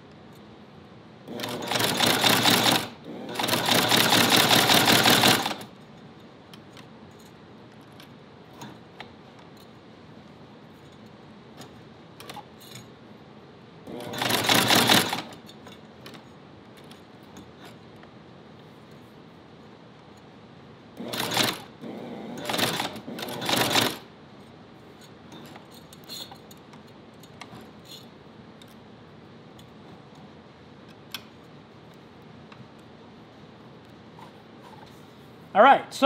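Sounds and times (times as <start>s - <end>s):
sewing machine stitching leather: 1.3s - 5.7s, 13.9s - 15.4s, 21.0s - 24.1s.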